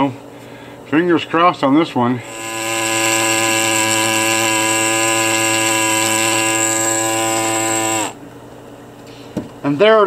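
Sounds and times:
pneumatic air scribe buzzing: 0:02.2 - 0:08.2.

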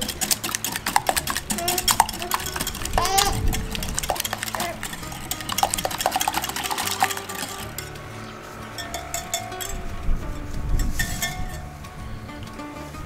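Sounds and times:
whisk beating eggs in glass jug: 0:00.0 - 0:08.1, 0:08.7 - 0:09.8.

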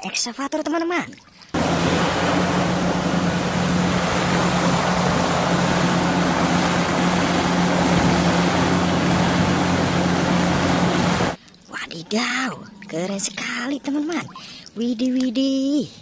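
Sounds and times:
excavator diesel engine droning: 0:01.6 - 0:11.4.

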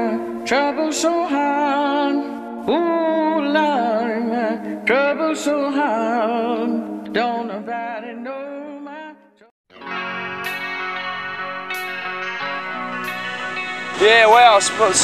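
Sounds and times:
solo voice singing: 0:00.0 - 0:09.4.

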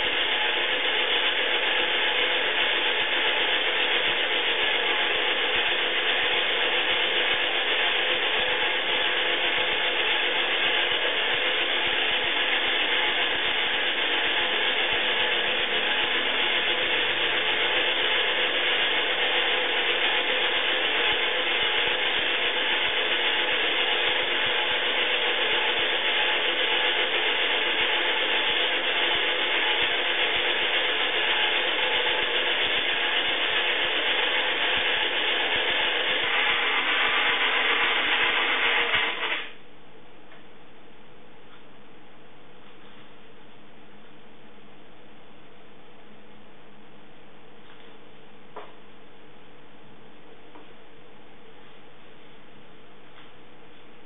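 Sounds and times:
toy washing machine motor running: 0:00.0 - 0:39.6.

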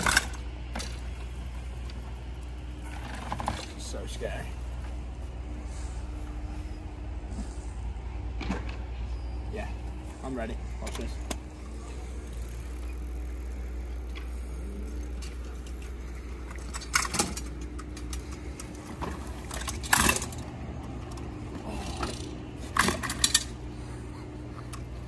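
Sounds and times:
bike rattling on concrete: 0:00.0 - 0:06.2, 0:09.6 - 0:25.0
steady low rumble: 0:00.0 - 0:25.0.

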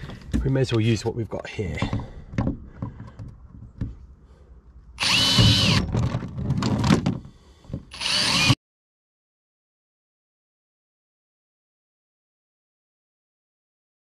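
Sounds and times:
electric drill whining: 0:05.0 - 0:06.0, 0:07.9 - 0:08.6.

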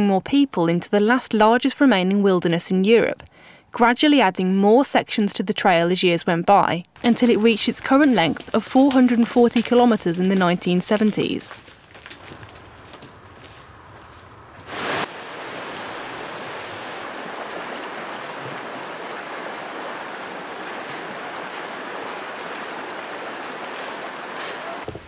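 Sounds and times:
river rushing over stones: 0:14.7 - 0:24.9.

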